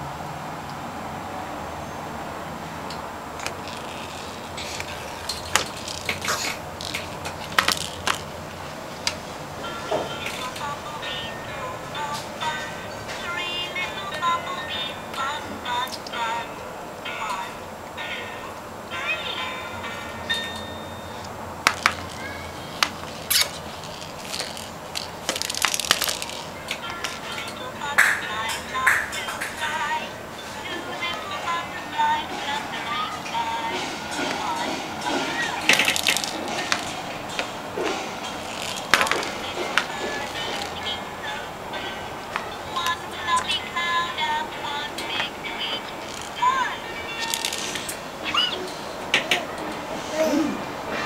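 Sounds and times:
plastic toys knocking and clicking: 0:03.4 - 0:08.4, 0:09.9 - 0:10.7, 0:21.6 - 0:29.7, 0:35.0 - 0:41.0, 0:47.2 - 0:48.0.

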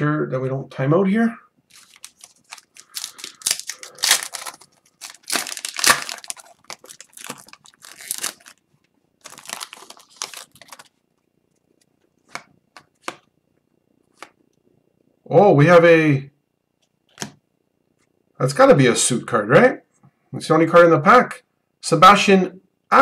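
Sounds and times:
foil wrapper tearing and crinkling: 0:01.7 - 0:08.6, 0:09.2 - 0:11.0.

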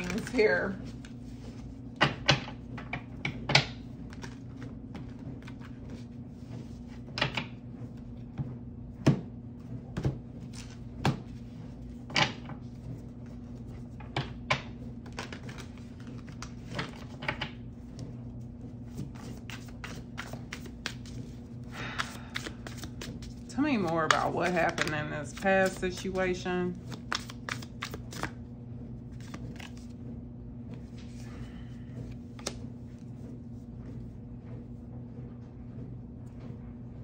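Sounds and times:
cards being shuffled: 0:00.0 - 0:07.5, 0:12.1 - 0:18.0, 0:18.7 - 0:28.4, 0:29.1 - 0:30.0, 0:32.0 - 0:33.0.

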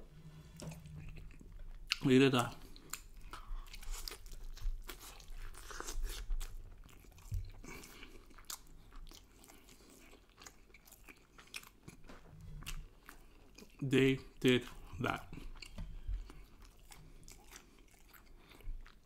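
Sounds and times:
person chewing meat: 0:00.4 - 0:19.0.

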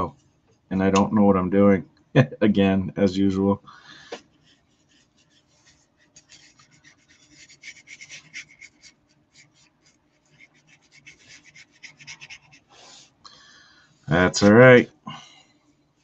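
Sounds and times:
paintbrush rubbing on paper: 0:04.2 - 0:13.1.

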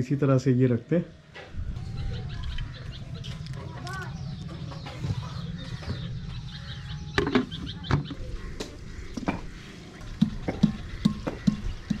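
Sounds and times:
steady low rumble: 0:01.5 - 0:11.9.

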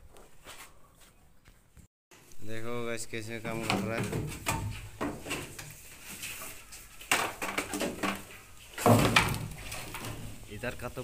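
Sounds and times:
bamboo poles clattering: 0:03.3 - 0:11.0
poles crashing: 0:08.8 - 0:10.4.

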